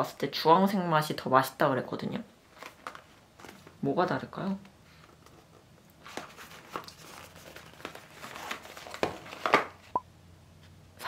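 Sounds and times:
cardboard boxes rustling: 5.0s - 9.9s.

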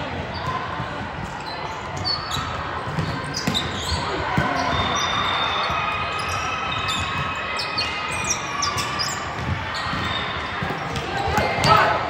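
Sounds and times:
shoe squeaks on court: 1.3s - 11.0s.

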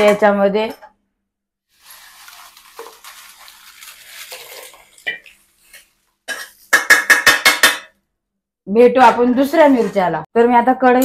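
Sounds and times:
dry chillies rustling: 1.7s - 5.9s.

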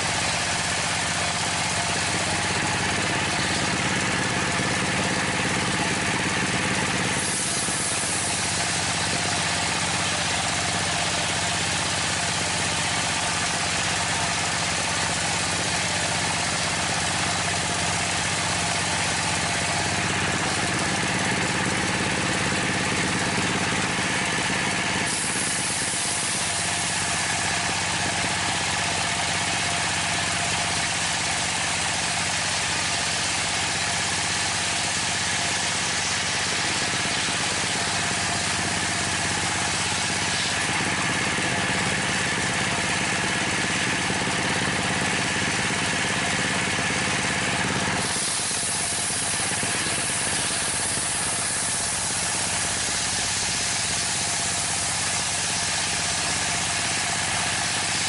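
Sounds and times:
circular saw hissing: 0.0s - 58.0s
diesel engine running: 0.0s - 58.0s.

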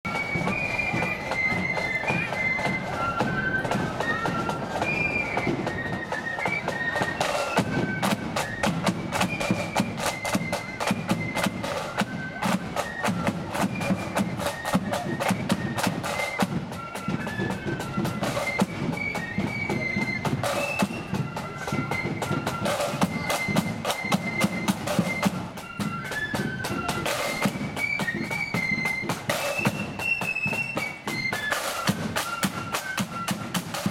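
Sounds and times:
flutes playing melody: 0.1s - 33.9s.

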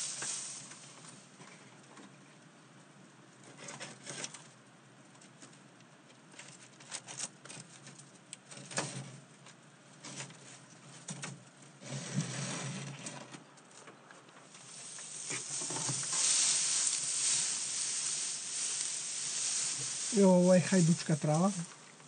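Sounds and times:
dry herbs rustling and crackling: 0.0s - 1.4s, 14.4s - 22.0s.

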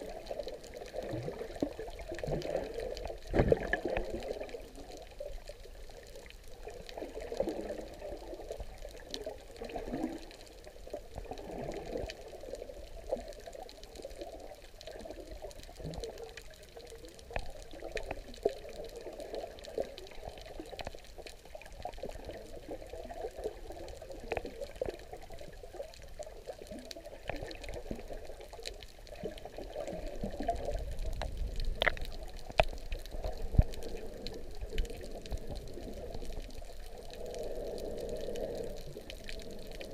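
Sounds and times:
underwater gurgling churn: 0.0s - 39.9s
sharp underwater clicks: 30.0s - 39.9s.

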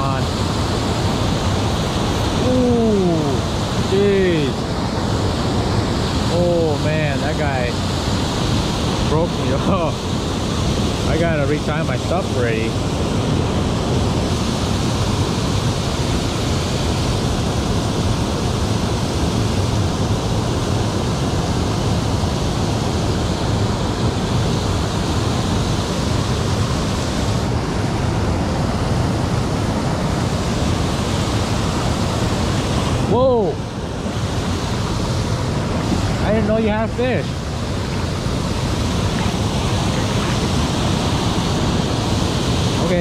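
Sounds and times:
water pouring over dam spillway: 0.0s - 43.0s.

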